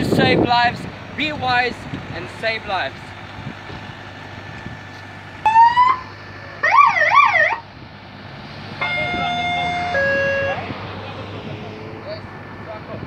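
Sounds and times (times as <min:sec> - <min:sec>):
road and wind noise: 0:00.0 - 0:13.0
electronic siren chirps: 0:05.4 - 0:07.6, 0:08.8 - 0:10.7.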